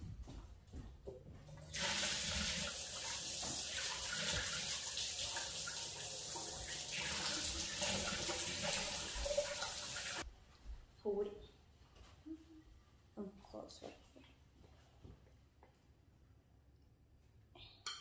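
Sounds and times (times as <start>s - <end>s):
water running into a sink: 1.7s - 10.2s.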